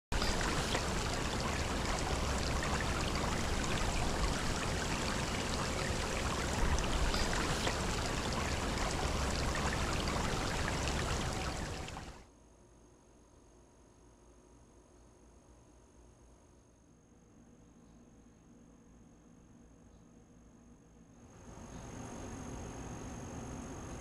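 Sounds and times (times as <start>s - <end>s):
creek water over rocks: 0.1s - 12.2s.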